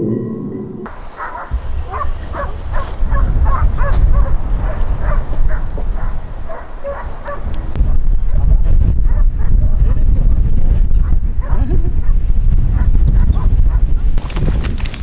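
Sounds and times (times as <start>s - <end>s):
low rumble: 0.0s - 4.5s
dogs barking in yelps: 1.0s - 7.5s, 9.0s - 9.8s, 11.0s - 14.0s.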